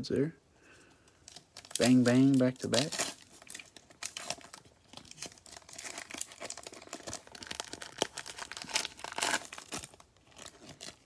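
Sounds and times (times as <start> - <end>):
foil wrapper crinkling torn open: 1.2 - 11.0.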